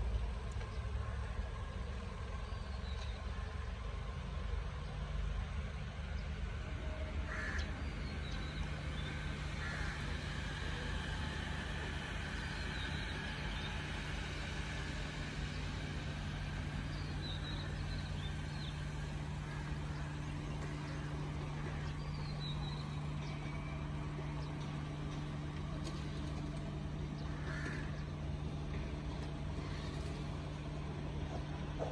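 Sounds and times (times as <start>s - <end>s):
car engines running: 0.0s - 31.9s
birds calling: 7.2s - 31.9s.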